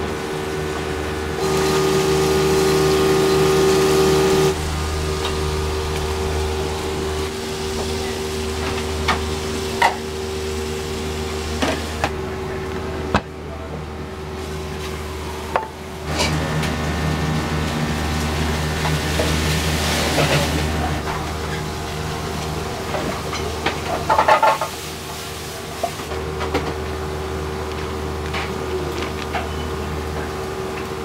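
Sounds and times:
kitchen equipment hum: 0.0s - 31.0s
dishes and utensils clinking: 23.0s - 24.8s.

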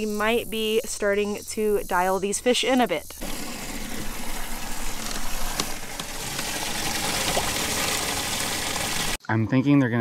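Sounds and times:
water spraying and running: 3.1s - 9.2s
water splashes: 3.2s - 9.2s.

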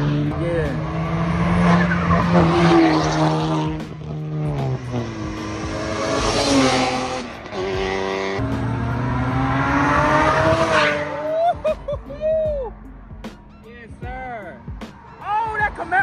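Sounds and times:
car engine accelerating hard: 0.0s - 12.1s.

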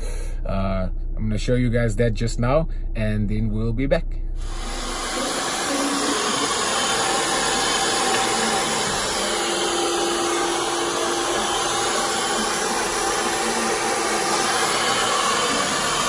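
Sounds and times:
faint motor hum: 0.0s - 16.0s
hair dryer blowing: 4.4s - 16.0s.

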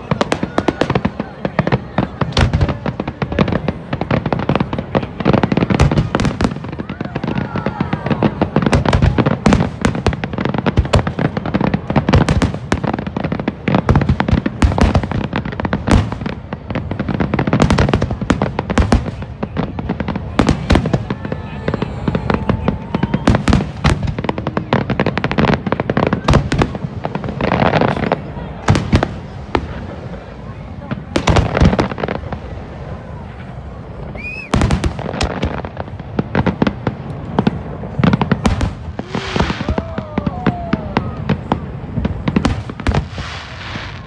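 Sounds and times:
fireworks bursting: 0.0s - 44.0s
fireworks crackling: 0.0s - 44.0s.

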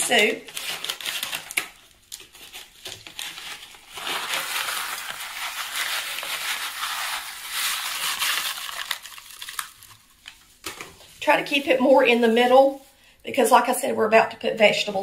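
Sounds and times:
dry stuffing pouring from bag: 3.8s - 9.9s.

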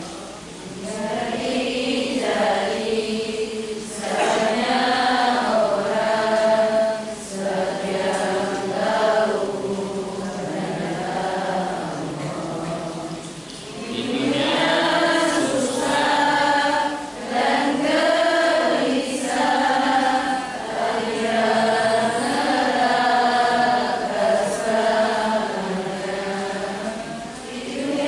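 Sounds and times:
man chanting melodic recitation: 13.8s - 15.8s.

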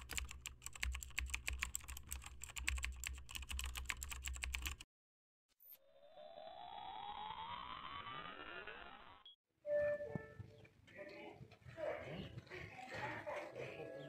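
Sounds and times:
rising electronic tone sweep: 5.7s - 9.3s.

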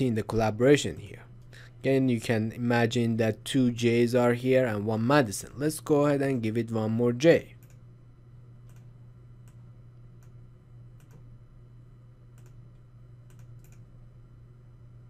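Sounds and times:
low electrical hum: 0.0s - 15.0s
computer mouse clicks: 7.6s - 7.8s, 8.6s - 9.6s, 11.0s - 11.2s, 12.3s - 12.6s, 13.2s - 13.9s.

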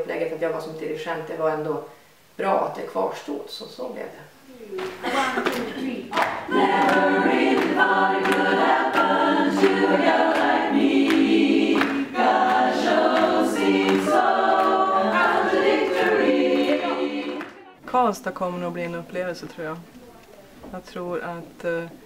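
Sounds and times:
women's chorus singing a cappella: 5.1s - 17.8s.

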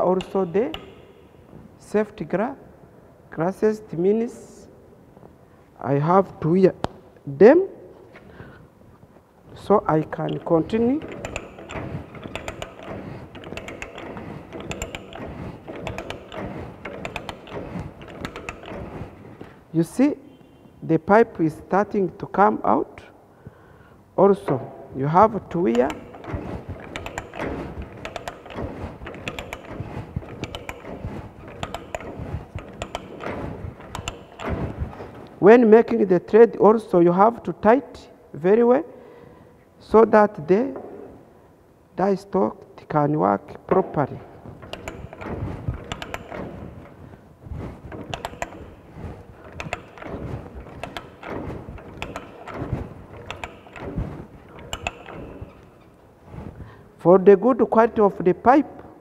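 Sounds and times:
ratchet pipe threader clicking: 0.0s - 1.4s, 9.7s - 19.6s, 25.4s - 35.4s, 44.4s - 56.0s
die scraping metal pipe: 9.8s - 19.7s.

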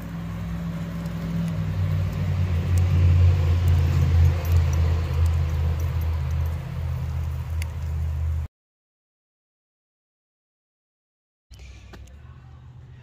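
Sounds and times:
loud low rumble: 0.0s - 8.4s.

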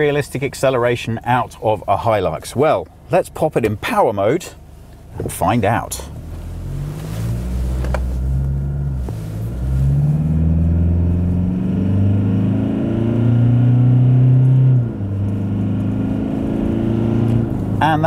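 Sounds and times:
diesel engine accelerating hard: 5.7s - 18.0s.

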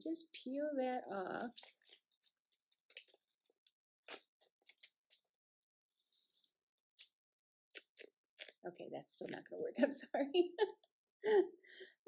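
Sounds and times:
paper rustling: 1.4s - 5.3s.

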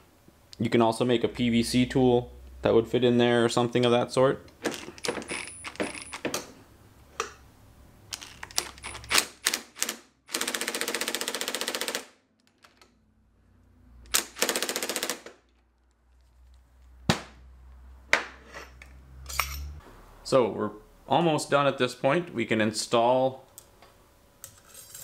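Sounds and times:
clicks and knocks of tools: 4.5s - 6.6s.

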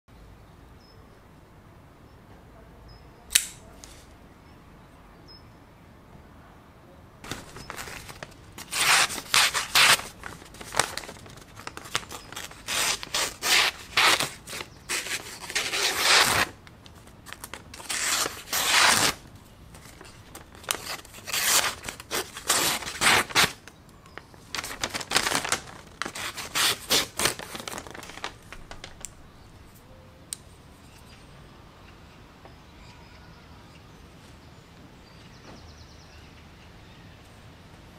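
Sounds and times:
folding knife opening click: 3.3s - 3.6s
knife slicing through paper: 7.3s - 16.6s, 17.3s - 19.2s, 19.9s - 23.6s, 24.6s - 28.3s.

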